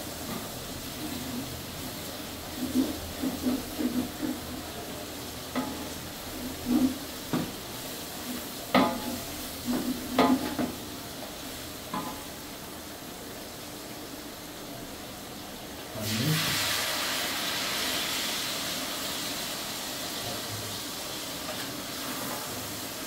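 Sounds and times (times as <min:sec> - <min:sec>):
food sizzling in oil: 0:00.0 - 0:23.0
wooden spatula scraping a pot: 0:00.1 - 0:04.9, 0:05.5 - 0:07.6, 0:08.2 - 0:10.8.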